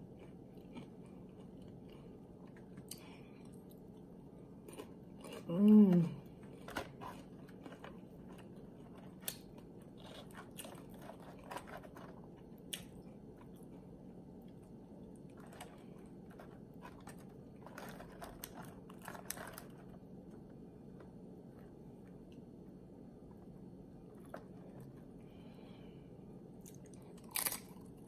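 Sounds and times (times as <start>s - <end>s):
quiet chewing: 0.0s - 26.0s, 26.6s - 28.0s
crisp chip crunches: 4.6s - 13.6s, 26.6s - 28.0s.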